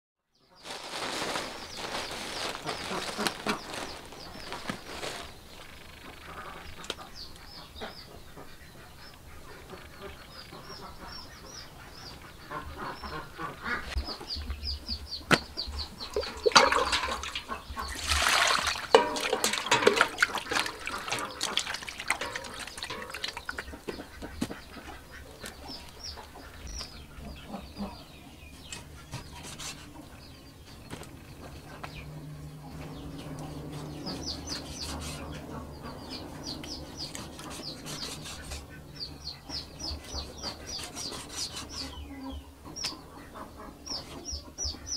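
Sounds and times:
small birds chirping: 0:00.3 - 0:44.9
farm fowl: 0:02.4 - 0:14.3, 0:15.2 - 0:44.9
water sloshing in a plastic basin: 0:16.0 - 0:24.9.

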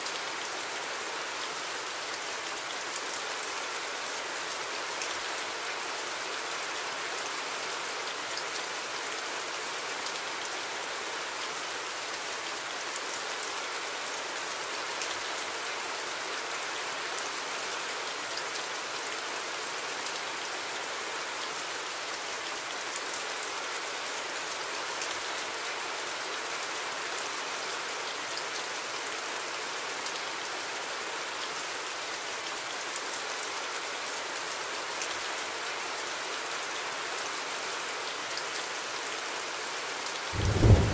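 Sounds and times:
steady rain hiss: 0:00.0 - 0:40.9.

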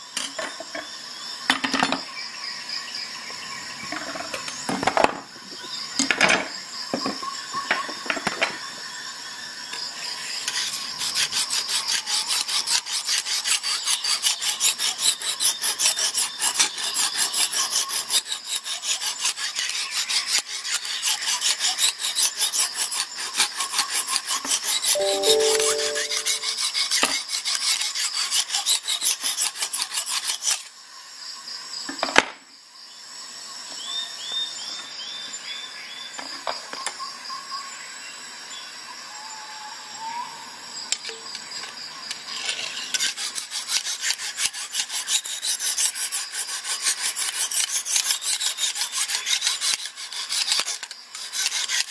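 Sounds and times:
stone scraping knife edge: 0:42.3 - 0:51.9.

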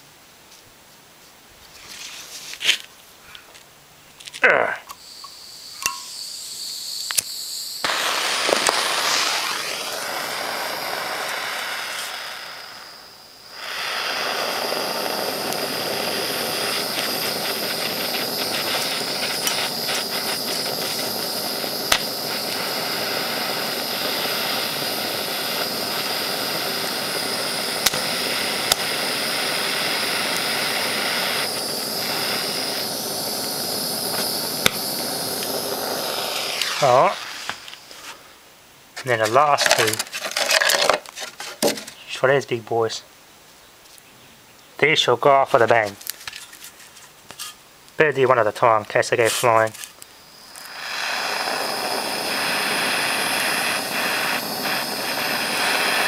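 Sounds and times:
blowtorch hissing: 0:04.9 - 0:38.3, 0:39.2 - 0:41.9, 0:48.6 - 0:56.0.

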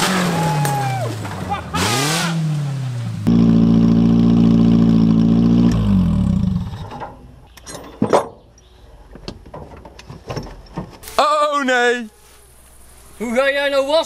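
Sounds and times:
car engine revving: 0:00.0 - 0:07.1.

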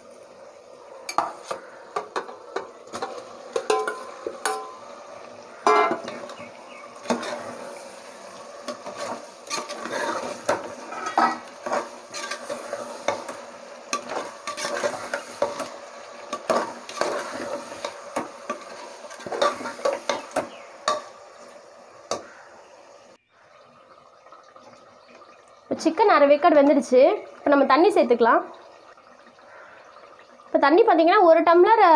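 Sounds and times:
light sizzle of cooking: 0:00.0 - 0:31.9
ladle scraping a metal pot: 0:05.6 - 0:15.7, 0:16.3 - 0:21.1.

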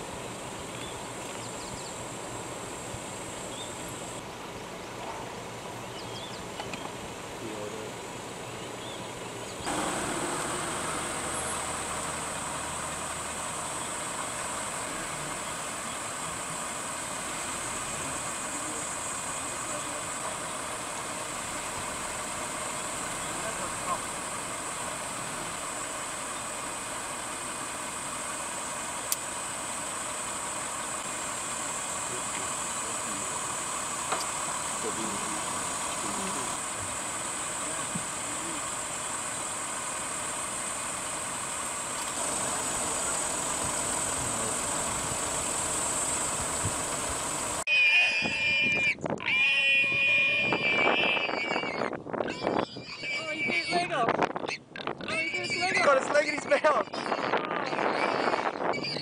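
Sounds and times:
steady noise with low hum: 0:00.0 - 0:47.7
constant hiss: 0:00.0 - 0:48.5, 0:53.2 - 0:59.0
high-pitched drone: 0:42.3 - 0:51.9.

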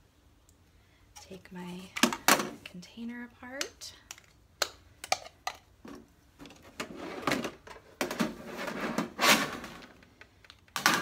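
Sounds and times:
plastic case tray scraping: 0:06.5 - 0:09.9.

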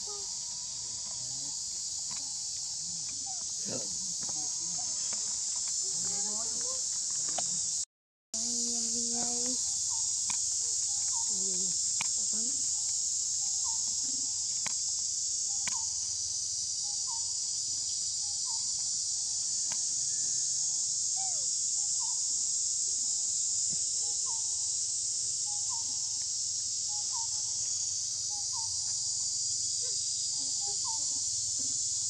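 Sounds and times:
insect chorus buzzing: 0:00.0 - 0:32.0.

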